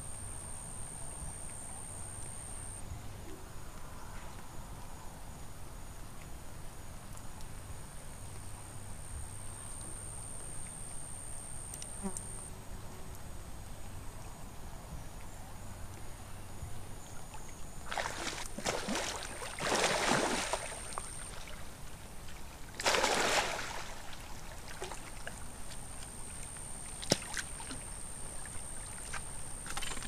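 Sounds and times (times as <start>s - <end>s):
water splashing and sloshing: 17.0s - 30.0s.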